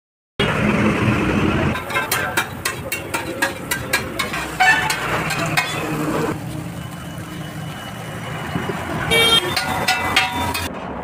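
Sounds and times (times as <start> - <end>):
frying sizzle: 1.7 - 8.2
spatula tapping on griddle: 1.8 - 5.8, 9.5 - 10.7.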